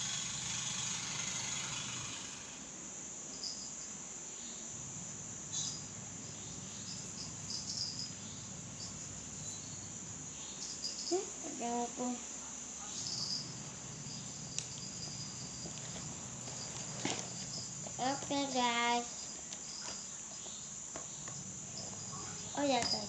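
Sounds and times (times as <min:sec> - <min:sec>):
high-pitched insect trill: 0:00.0 - 0:23.0
faint ticks: 0:14.5 - 0:14.9.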